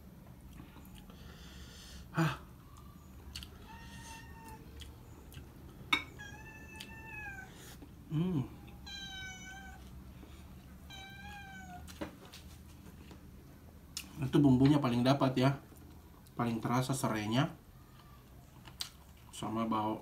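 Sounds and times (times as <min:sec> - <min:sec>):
cat meowing: 0:02.6 - 0:04.8, 0:06.0 - 0:07.6, 0:08.5 - 0:09.9, 0:10.8 - 0:12.0.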